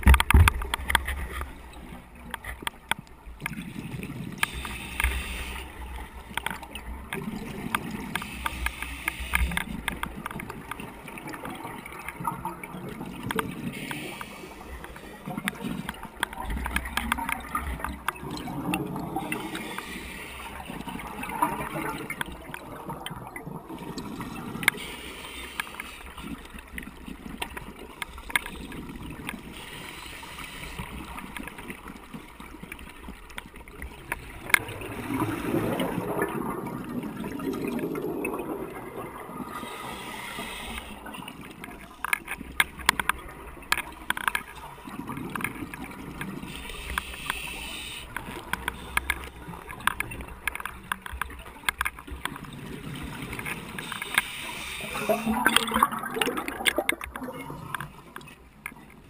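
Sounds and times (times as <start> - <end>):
diver breathing through regulator: 39.6 - 41.0.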